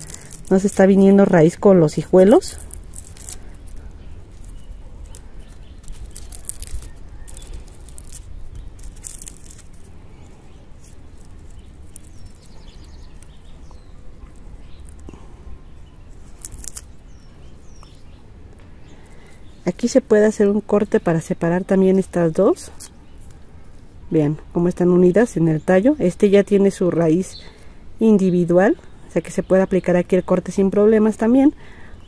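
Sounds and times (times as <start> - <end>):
crackles and rustles of dry leaves: 0.0 - 20.1, 21.3 - 24.6.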